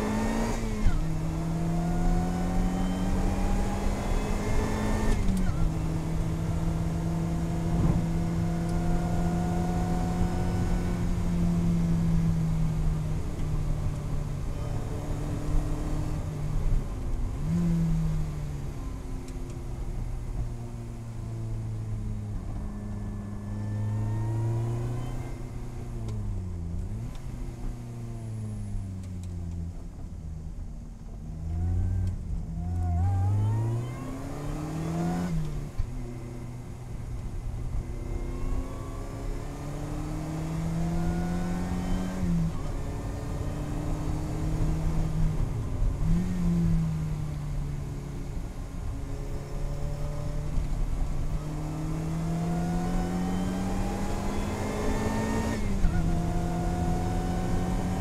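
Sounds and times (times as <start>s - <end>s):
car engine revving: 0.0s - 19.0s, 31.0s - 58.0s.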